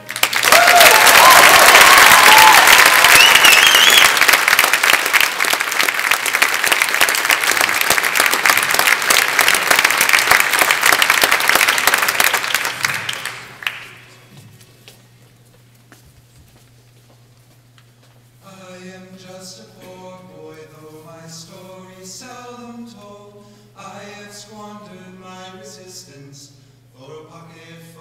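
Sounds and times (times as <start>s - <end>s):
crowd whooping: 0.0s - 5.2s
audience applauding: 0.0s - 14.1s.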